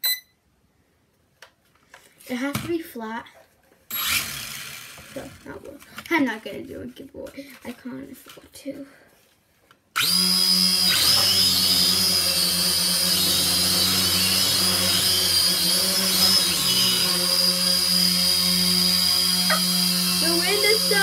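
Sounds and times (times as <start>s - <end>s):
toy drone motors whining: 3.9s - 5.7s, 10.0s - 21.0s.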